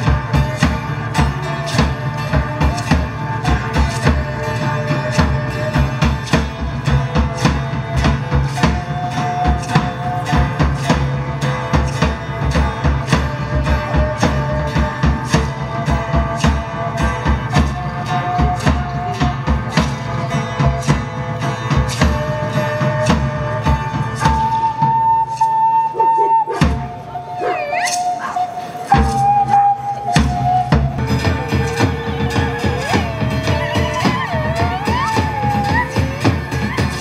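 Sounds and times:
folk-rock band playing: 0.0 - 37.0
drum kit beat: 30.1 - 37.0.

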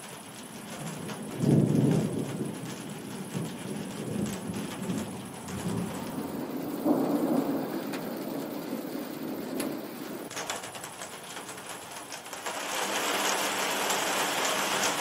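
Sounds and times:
falling rain: 0.0 - 15.0
thunder rumbling: 0.4 - 11.0.

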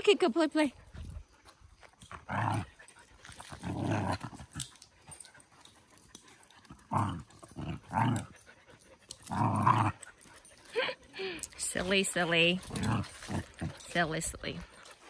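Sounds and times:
dog growling: 2.1 - 4.8, 6.5 - 11.4, 12.5 - 14.1.

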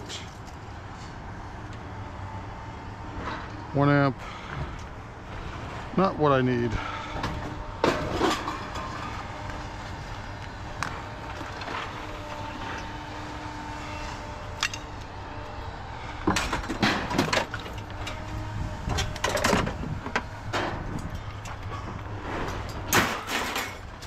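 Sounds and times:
scrap metal clanking and banging: 6.6 - 15.0, 16.0 - 24.0.

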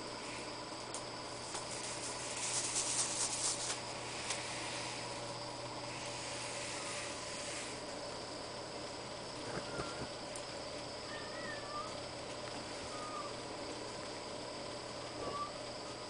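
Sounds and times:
background hiss: 0.0 - 11.9.

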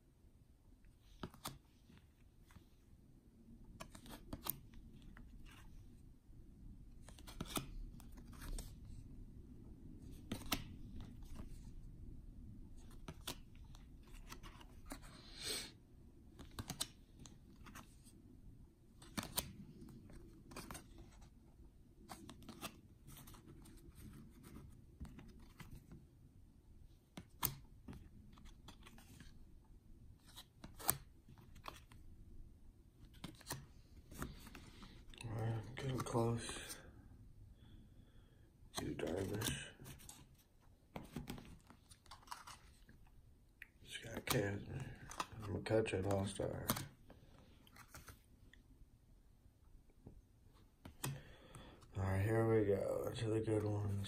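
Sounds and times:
cards being flipped by hand: 1.0 - 2.7, 3.6 - 5.8, 6.9 - 9.0, 10.0 - 11.8, 12.7 - 15.2, 16.3 - 18.2, 18.9 - 21.4, 22.0 - 26.0, 27.0 - 29.5, 30.2 - 32.0, 33.0 - 36.8, 37.6 - 48.6, 50.0 - 51.9
card stock snapping and sliding: 10.1 - 10.7, 16.4 - 17.0, 19.0 - 19.6.

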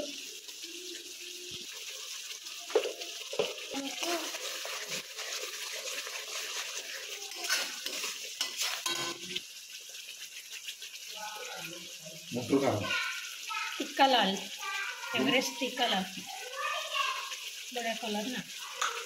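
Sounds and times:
food sizzling in a pan: 0.0 - 19.0
spatula scraping a pan: 1.8 - 11.0.

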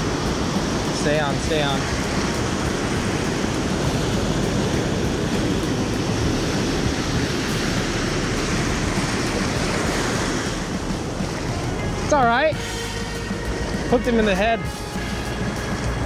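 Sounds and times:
ocean surf breaking: 0.0 - 16.0.

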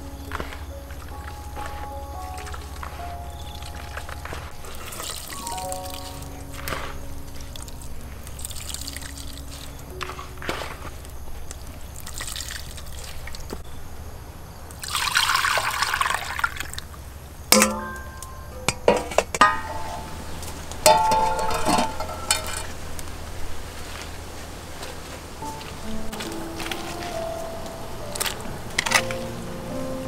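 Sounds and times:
metal kitchenware clinking: 17.5 - 22.8.

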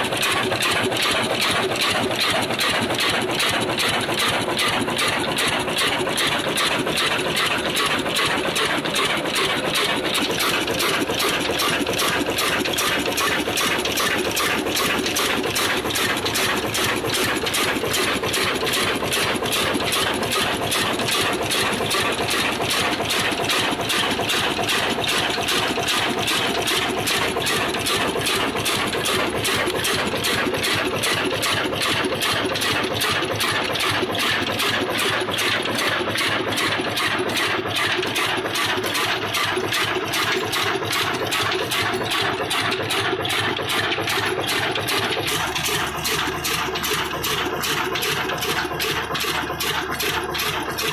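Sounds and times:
diesel engine running: 0.0 - 50.9.

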